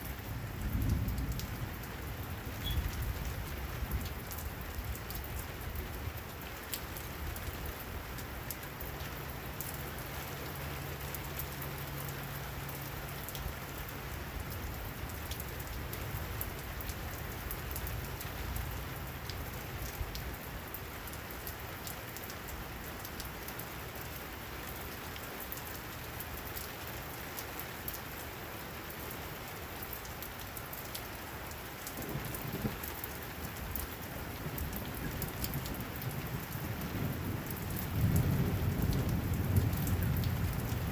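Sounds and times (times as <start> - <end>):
rain falling on pavement: 0.0 - 40.9
low thunder rumble: 0.2 - 5.0, 32.0 - 40.9.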